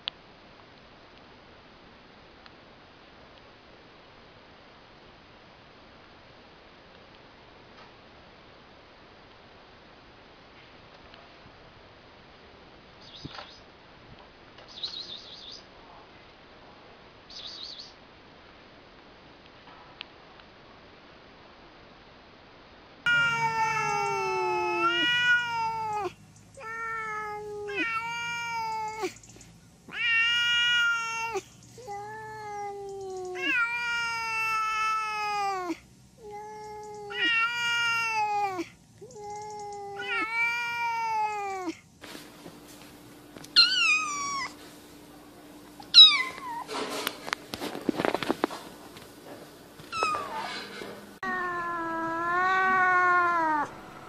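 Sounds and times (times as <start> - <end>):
cats meowing: 23.1 - 29.2, 29.9 - 41.8, 43.4 - 44.6, 45.8 - 46.8, 49.8 - 54.0
sharp sliding cat cries: 23.1 - 29.2, 29.9 - 41.8, 43.6 - 44.6, 45.9 - 46.7, 49.9 - 54.0.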